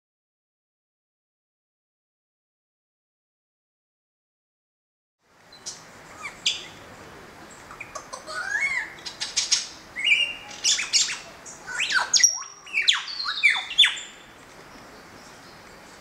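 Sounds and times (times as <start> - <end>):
lyrebird singing mimicked calls: 7.6 - 14.2.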